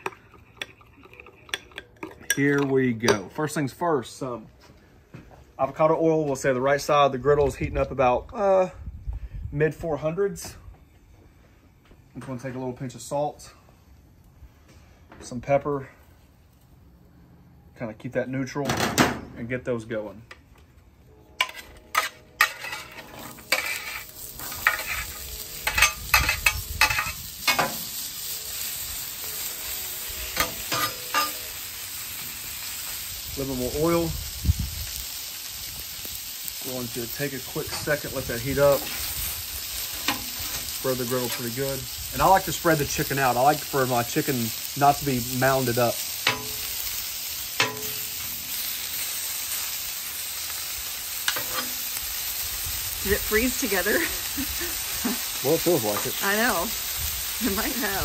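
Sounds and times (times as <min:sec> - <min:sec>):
metal scraper clattering on pan: 0:21.4 - 0:24.0, 0:46.3 - 0:46.6, 0:47.6 - 0:48.1, 0:51.3 - 0:51.8
vegetables sizzling on griddle: 0:21.4 - 0:58.0.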